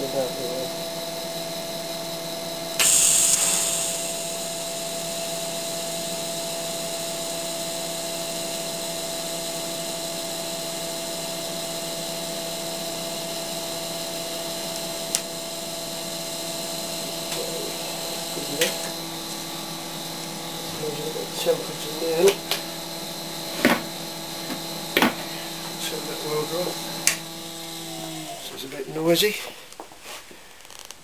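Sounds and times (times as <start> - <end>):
welding machine hum: 2.7 - 10.0
sharp click: 2.8 - 5.0
welding arc hissing: 2.8 - 9.3.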